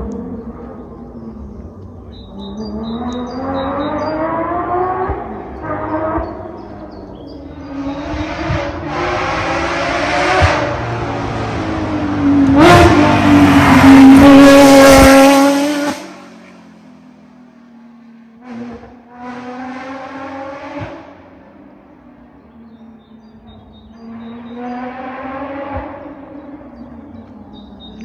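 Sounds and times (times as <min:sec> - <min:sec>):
rally car engine at high revs: 0:02.3 - 0:16.6, 0:18.4 - 0:21.5, 0:22.6 - 0:28.0.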